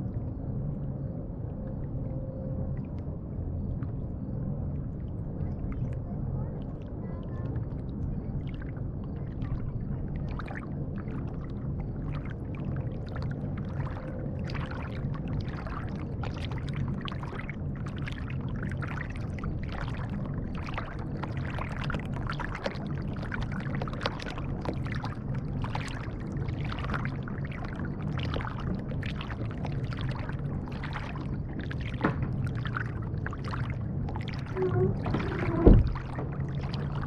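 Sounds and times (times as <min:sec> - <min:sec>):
low steady rumble: 0:00.0 - 0:37.0
water splashing against kayak: 0:08.3 - 0:37.0.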